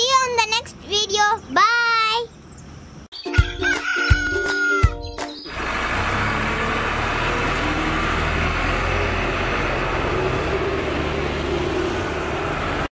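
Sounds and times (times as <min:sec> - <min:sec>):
diesel engine running: 0:05.4 - 0:12.9.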